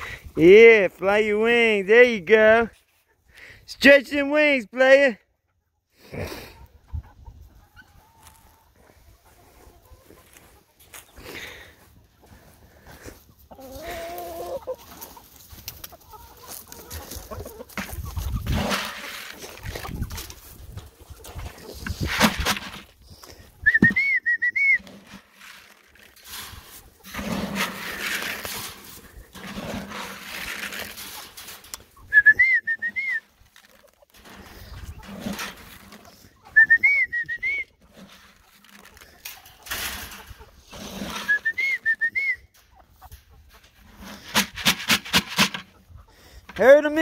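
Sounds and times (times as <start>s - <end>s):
rustling and shuffling noise: 8.2s - 23.6s, 24.8s - 32.2s, 33.1s - 36.7s, 37.8s - 41.8s, 42.6s - 47.0s.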